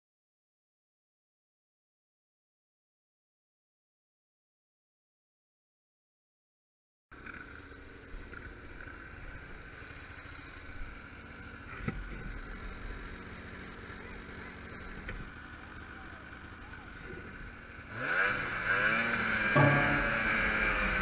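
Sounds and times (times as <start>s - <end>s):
snowmobile engine running: 7.2s - 21.0s.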